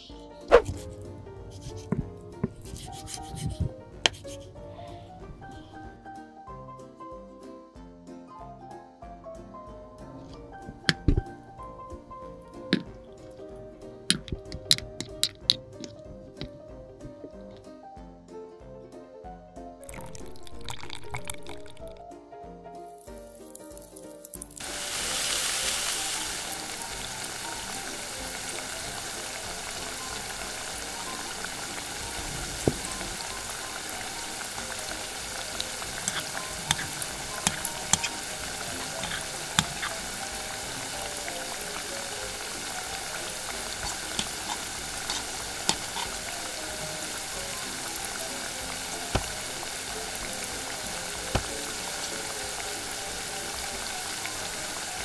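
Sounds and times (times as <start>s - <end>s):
chicken deep-frying in oil: 0.0s - 5.8s, 10.3s - 17.2s, 19.8s - 22.0s, 22.9s - 55.0s
tongs clicking against pan: 34.3s - 40.5s, 43.1s - 46.4s.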